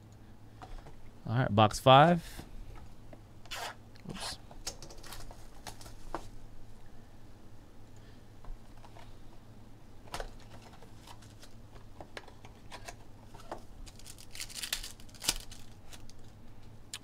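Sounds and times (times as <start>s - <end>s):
wrapper crinkling and tearing: 13.3s - 16.4s.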